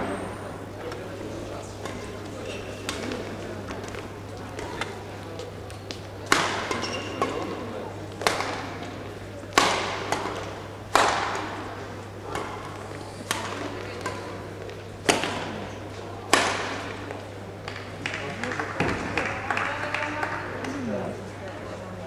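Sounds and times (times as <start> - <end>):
rackets striking shuttlecock: 1.8 - 7.6, 8.2 - 19.0.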